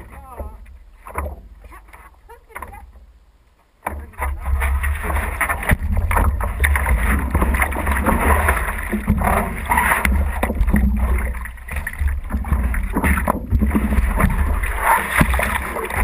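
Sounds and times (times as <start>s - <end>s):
steady low rumble: 0.0s - 16.0s
hands paddling water splashing: 3.8s - 16.0s.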